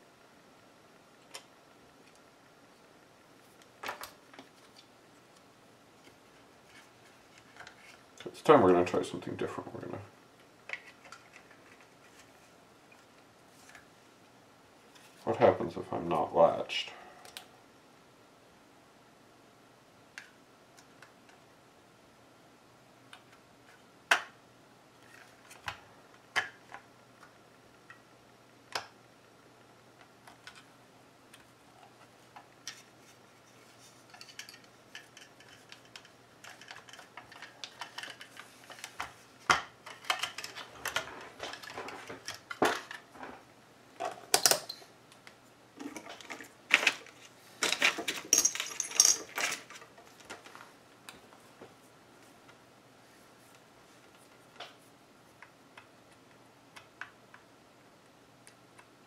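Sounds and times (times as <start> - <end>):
hard plastic clicks and rattles: 34.1 - 43.0.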